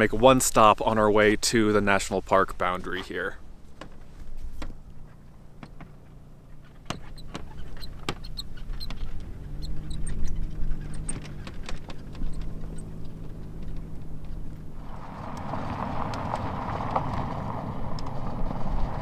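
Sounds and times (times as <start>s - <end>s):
car engine driving: 0.0s - 19.0s
sharp clicks: 6.8s - 14.4s.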